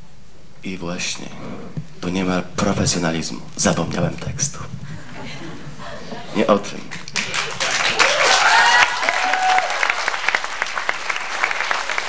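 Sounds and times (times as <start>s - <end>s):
audience applauding: 6.9s - 12.0s.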